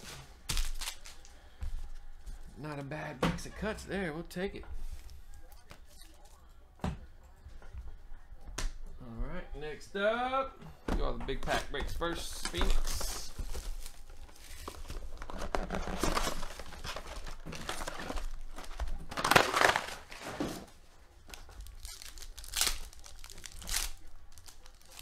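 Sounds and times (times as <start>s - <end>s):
foil wrappers crinkling and ripping: 0.0s - 1.3s, 12.9s - 25.0s
card box being opened: 12.6s - 20.6s.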